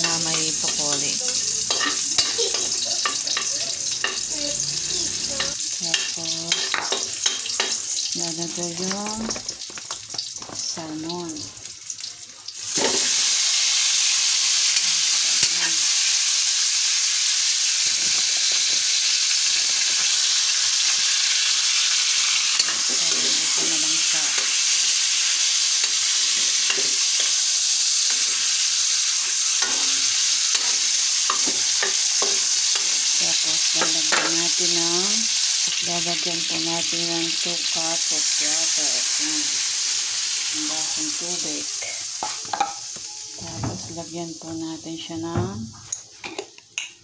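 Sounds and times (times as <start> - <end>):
metal spatula against pan: 0.0 - 4.3, 5.3 - 8.1, 22.5 - 24.7, 29.3 - 33.0
fish sizzling in hot oil: 0.0 - 45.4.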